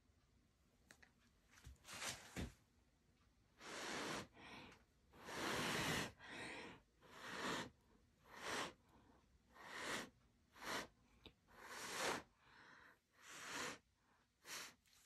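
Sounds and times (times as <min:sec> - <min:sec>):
person blowing puffs of breath: 0:03.6 - 0:08.9, 0:09.6 - 0:14.9.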